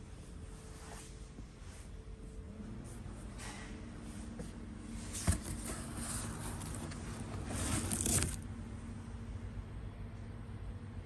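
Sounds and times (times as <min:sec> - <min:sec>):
cardboard box rustling and scraping: 0:05.0 - 0:08.4.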